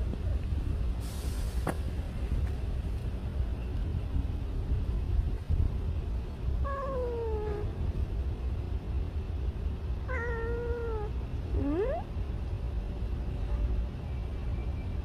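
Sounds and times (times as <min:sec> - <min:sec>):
steady low rumble: 0:00.0 - 0:15.0
cat meowing: 0:06.6 - 0:07.7, 0:10.1 - 0:12.1.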